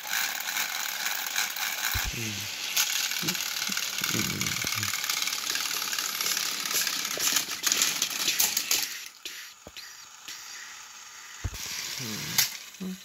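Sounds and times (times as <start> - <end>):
toy train motor whirr: 0.0 - 13.0
wheels rattling and clicking: 3.4 - 9.2.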